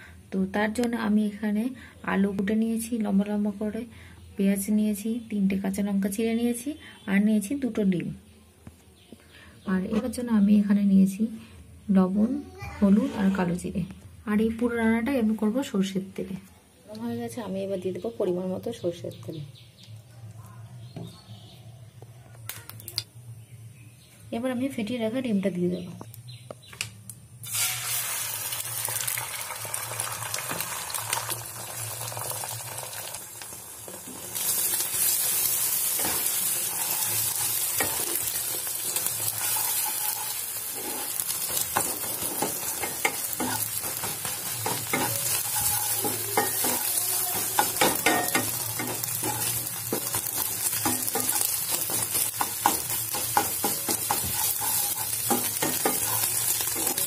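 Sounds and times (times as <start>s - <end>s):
egg sizzling in a frying pan: 27.4s - 57.0s
wooden spatula scraping a pan: 36.0s - 44.1s, 44.7s - 52.8s, 53.4s - 57.0s.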